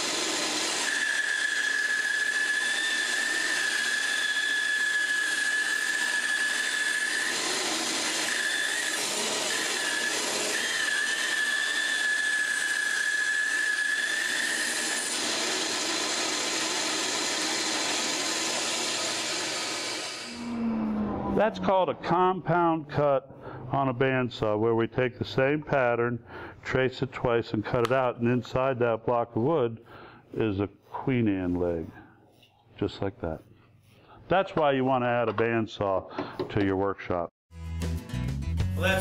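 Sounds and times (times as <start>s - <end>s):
bandsaw running: 0.0s - 20.5s
blade whining through wood: 0.0s - 22.3s
dust collector: 0.0s - 23.0s.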